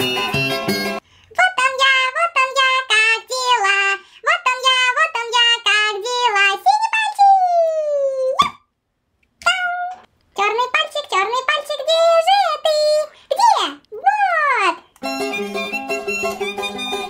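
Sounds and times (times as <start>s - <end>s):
instrumental music: 0.0s - 1.0s, 15.0s - 17.0s
high-pitched voice singing: 1.3s - 8.5s, 9.4s - 14.9s.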